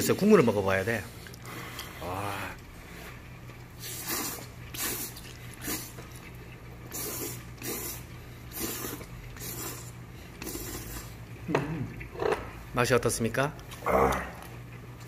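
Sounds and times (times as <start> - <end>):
man slurping noodles: 3.8 - 6.2, 6.8 - 11.2.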